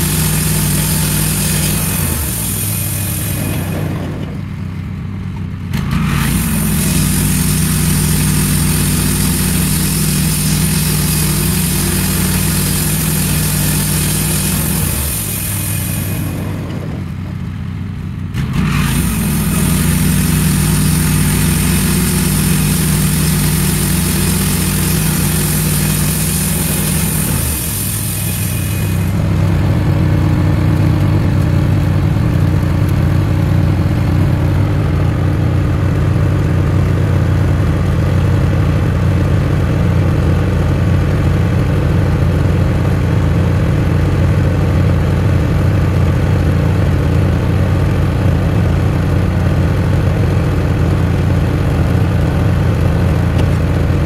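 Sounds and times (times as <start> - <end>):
band blade sawing a log: 0.0 - 4.3, 5.8 - 17.0, 18.4 - 29.5
sawmill engine running: 0.0 - 54.0.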